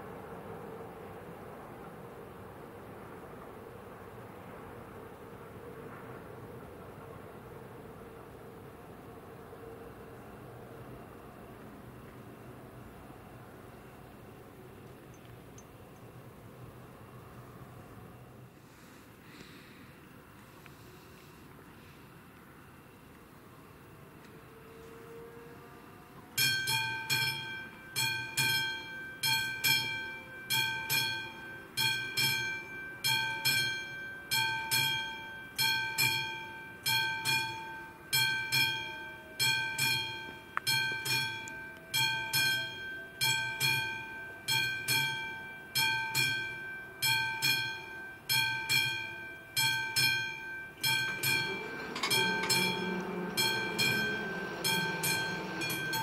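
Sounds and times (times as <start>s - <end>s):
freight train rumble: 0.0s - 56.0s
level crossing bell ringing: 26.4s - 56.0s.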